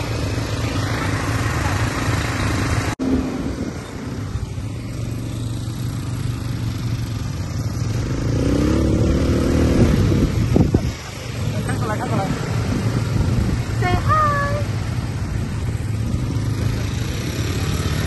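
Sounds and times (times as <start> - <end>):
quad bike engines running: 0.0 - 18.0.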